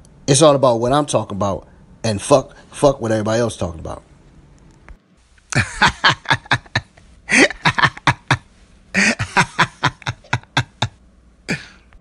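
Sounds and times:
person laughing hard: 5.5 - 11.8.

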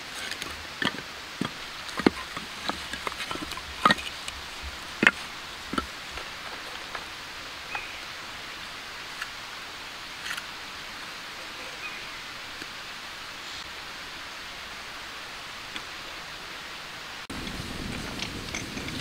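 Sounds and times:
steady outdoor hiss: 0.0 - 19.0.

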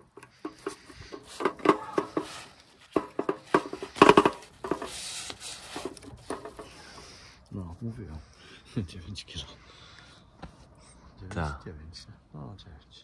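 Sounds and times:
nylon rustling: 0.0 - 7.1.

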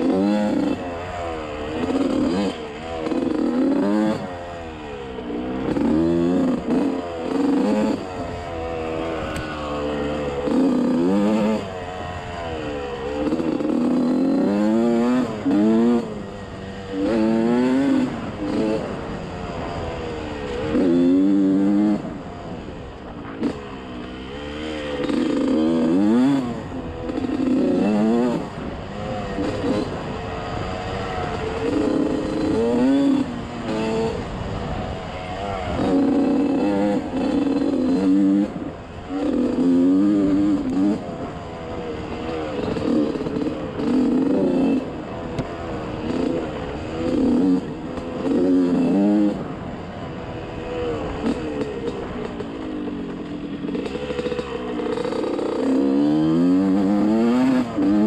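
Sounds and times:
off-road vehicle engine revving: 0.0 - 58.0.

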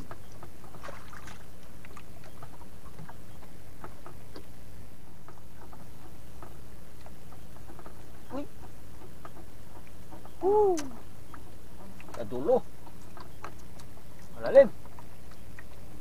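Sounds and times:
water splashes: 0.0 - 4.6
low boat engine rumble: 0.0 - 16.0.

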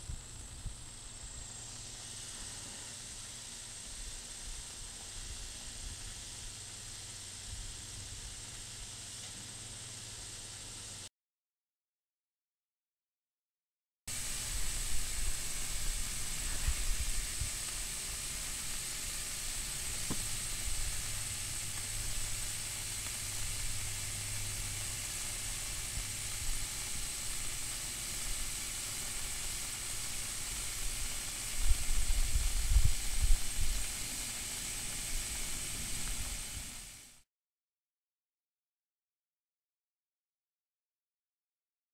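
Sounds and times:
power line corona hissing: 0.0 - 11.1, 14.1 - 37.2
sharp crackle: 14.1 - 37.2.

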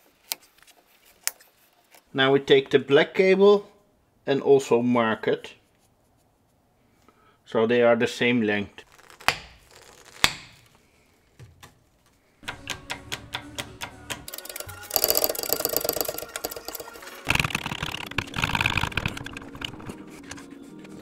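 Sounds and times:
hydraulic crimper clicking: 12.4 - 19.9
cable cutters snapping through cable: 12.4 - 20.0.

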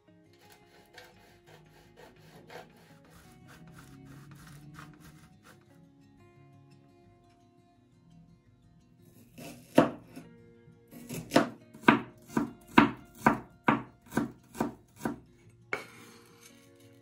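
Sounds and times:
knife chopping on cutting board: 0.4 - 4.0, 9.4 - 10.2, 11.0 - 15.2.

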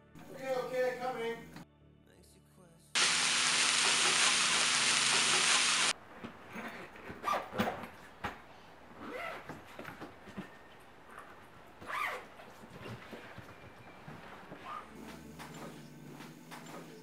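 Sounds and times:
food sizzling in frying pan: 3.0 - 5.9
clothes and suitcase rustling: 6.0 - 17.0.

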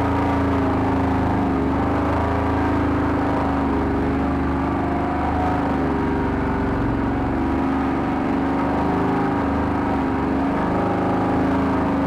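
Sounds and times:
vehicle engine running under load: 0.0 - 12.0.

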